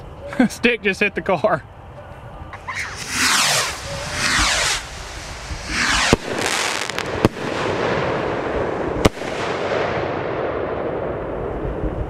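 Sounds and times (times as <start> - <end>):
crackling hiss: 1.8 - 11.5
firework bangs: 2.6 - 11.5.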